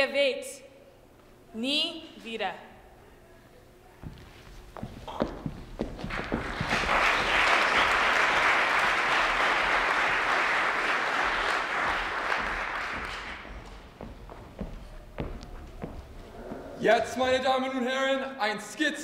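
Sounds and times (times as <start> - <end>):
audience applauding: 6.0 - 14.0.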